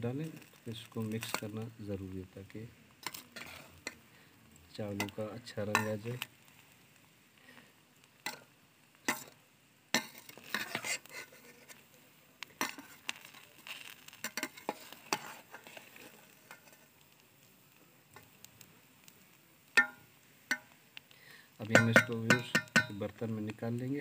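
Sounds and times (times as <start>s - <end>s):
metal spoon scraping a pot: 3.0s - 4.0s, 5.0s - 6.1s, 9.1s - 9.4s, 10.0s - 11.9s, 12.6s - 16.9s.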